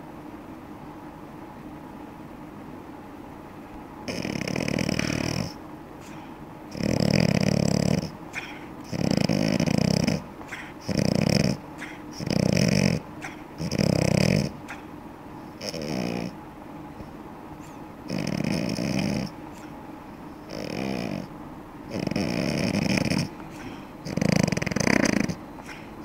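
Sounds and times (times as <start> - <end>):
dog snoring loudly: 4.0 - 14.9, 15.5 - 16.4, 17.0 - 19.7, 20.4 - 21.3, 21.9 - 26.0.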